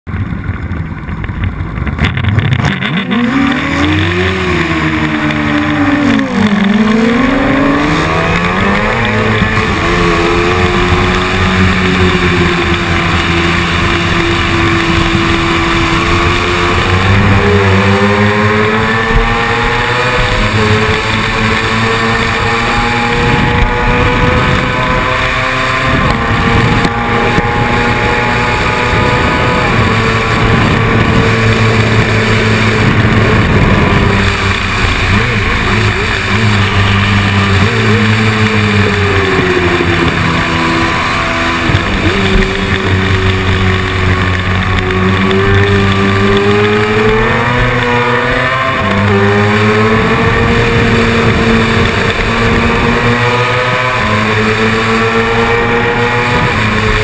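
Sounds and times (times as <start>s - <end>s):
engine at full throttle shifting: 0.0s - 57.0s.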